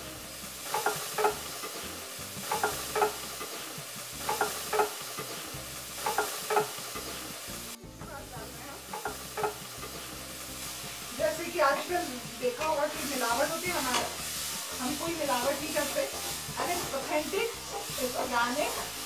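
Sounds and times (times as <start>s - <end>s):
paste sizzling in hot oil: 0.0s - 19.0s.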